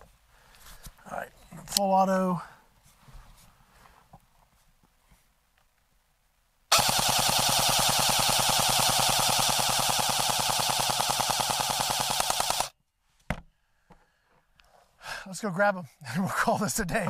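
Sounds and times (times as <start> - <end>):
bb rifle full-auto burst: 6.7 - 12.8.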